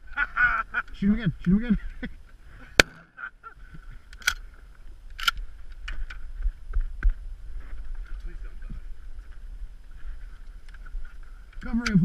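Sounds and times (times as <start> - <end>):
wind rumbling on microphone: 3.6 - 12.0.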